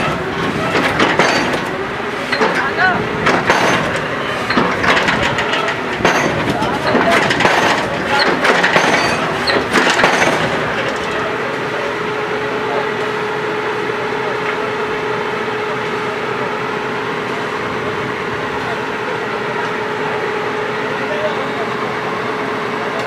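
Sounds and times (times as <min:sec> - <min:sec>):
loud knocks: 0:00.0 - 0:10.8
drilling rig machinery drone: 0:00.0 - 0:23.0.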